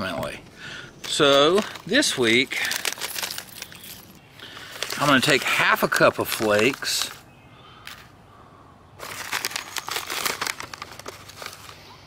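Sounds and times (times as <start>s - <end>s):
snack package crinkling: 1.0s - 7.2s, 9.0s - 11.8s.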